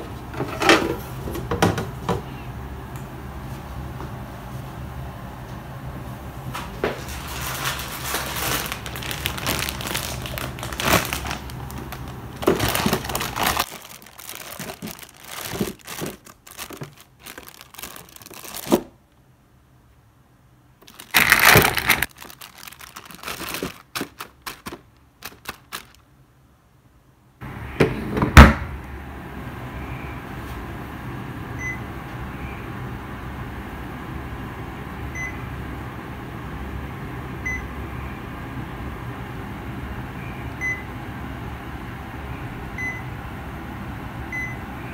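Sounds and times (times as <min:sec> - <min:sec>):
plastic bag crinkling: 0:07.0 - 0:19.0, 0:20.8 - 0:26.0.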